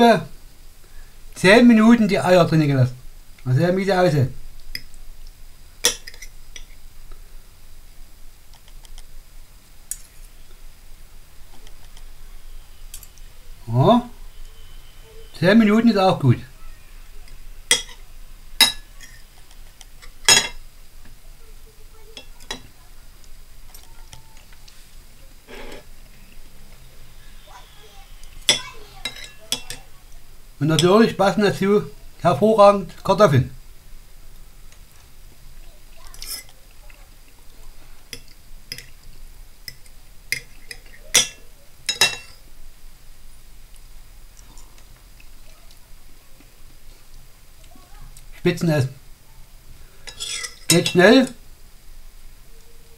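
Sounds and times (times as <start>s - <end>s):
knife and fork clinking on plate: 20.0s - 20.6s, 28.5s - 29.8s, 36.2s - 36.6s, 39.7s - 42.4s, 50.1s - 51.0s.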